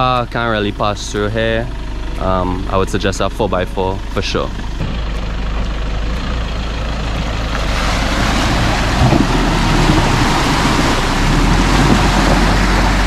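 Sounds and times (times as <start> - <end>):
truck engine running: 0.0 - 13.0
water rushing and splashing: 6.9 - 13.0.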